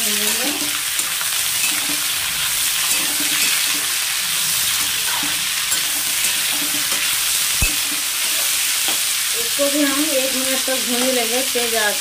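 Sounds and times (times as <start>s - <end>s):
vegetables sizzling in oil: 0.0s - 12.0s
spatula scraping a pan: 0.6s - 9.1s.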